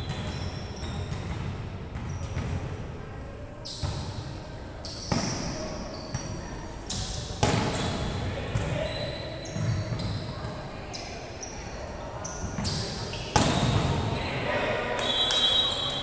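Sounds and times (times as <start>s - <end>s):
voices of players and spectators: 0.0s - 16.0s
volleyball slaps: 7.4s - 8.0s, 13.3s - 14.0s.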